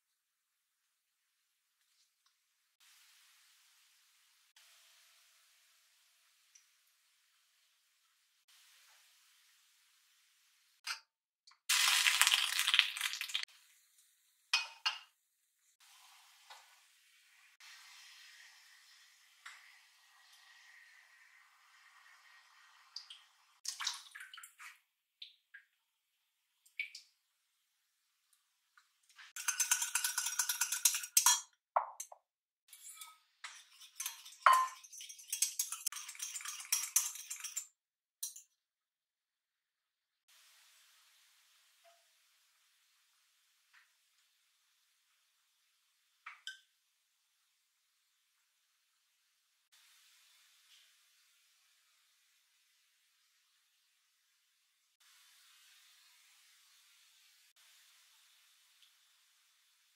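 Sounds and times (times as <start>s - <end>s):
whisk clinking against pot: 29.4s - 32.1s, 32.7s - 38.4s
faint stirring of water: 32.7s - 38.5s
clinks against glass: 34.5s - 35.7s.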